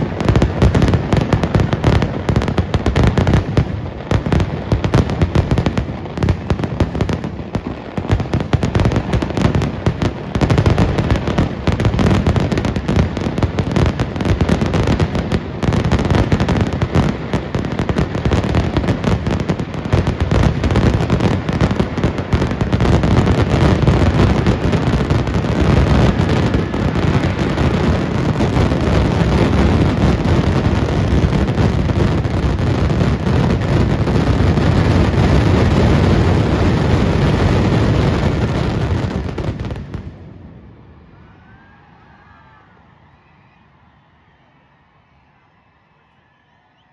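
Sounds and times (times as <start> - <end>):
fireworks loud bangs: 0.0 - 40.5.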